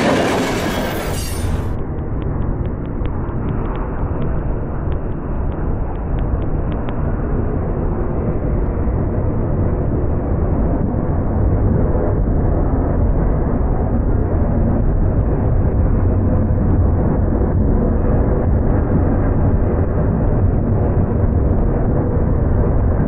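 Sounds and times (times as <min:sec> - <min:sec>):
train wheels rumbling on rails: 0:00.0 - 0:07.0.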